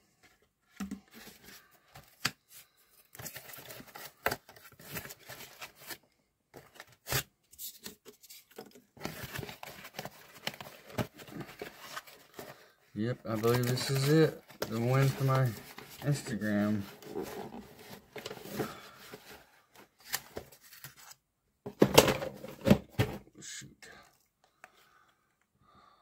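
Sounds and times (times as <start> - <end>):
paper rustling and crinkling: 1.0 - 21.2.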